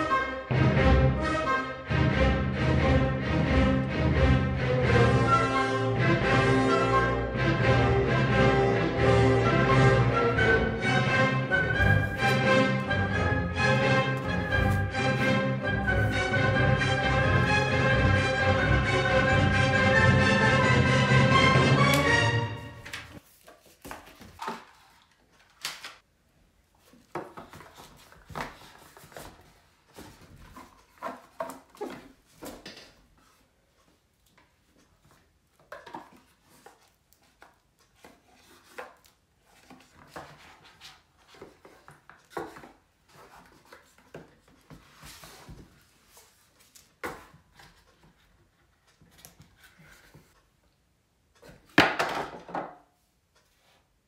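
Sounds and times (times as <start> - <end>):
paper rustling: 11.6 - 12.9, 13.8 - 16.6, 22.8 - 26.0
cards shuffling: 14.1 - 16.3.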